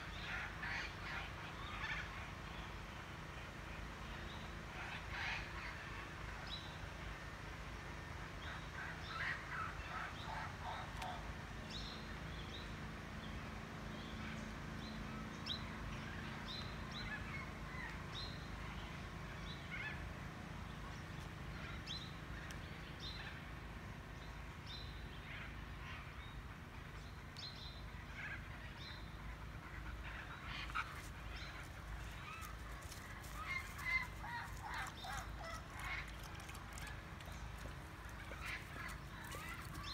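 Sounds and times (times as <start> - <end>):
birds chirping: 30.0 - 39.9.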